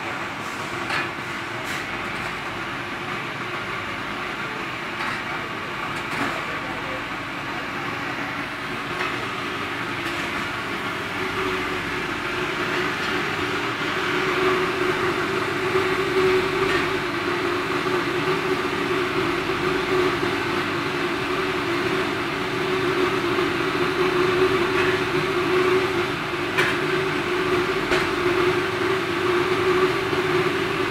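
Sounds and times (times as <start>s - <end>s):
constant hum: 0.0s - 30.9s
boiler mechanical drone: 6.5s - 30.9s.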